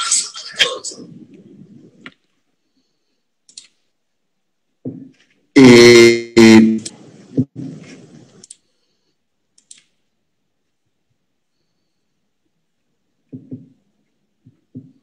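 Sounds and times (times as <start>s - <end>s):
faint clicks: 3.5s - 3.8s, 9.5s - 10.0s
loud pitched honks: 5.6s - 6.9s.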